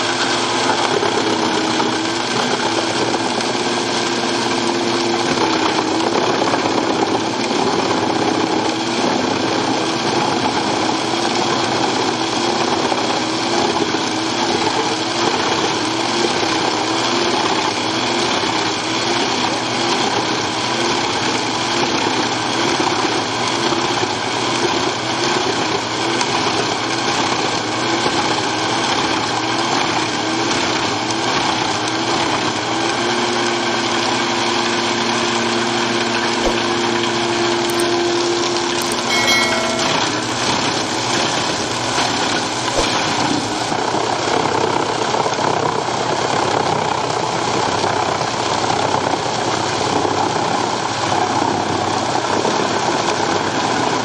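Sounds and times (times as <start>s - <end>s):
humming tone: 38.8s - 40.8s.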